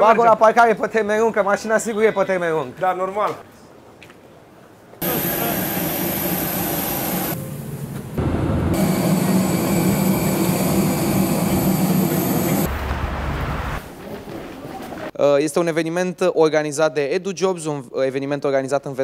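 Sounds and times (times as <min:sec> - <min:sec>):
jet engine rush in cabin: 0:05.0 - 0:13.8.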